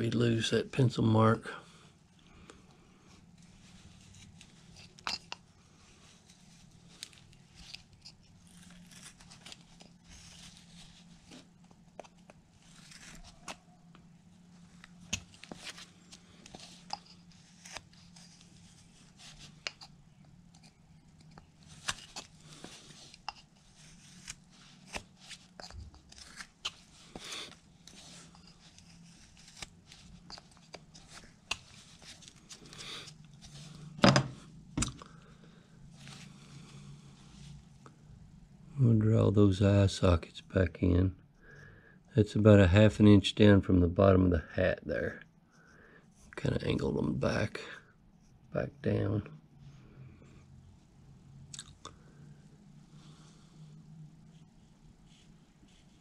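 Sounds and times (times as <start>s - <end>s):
knife slicing wood: 17.5s - 18.3s, 23.8s - 27.2s, 27.9s - 29.7s.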